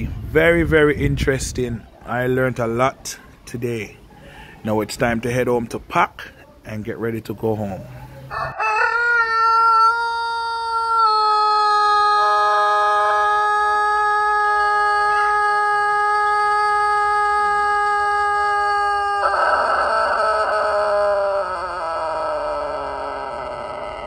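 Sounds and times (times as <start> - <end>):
rooster crowing long note: 8.3 - 24.0.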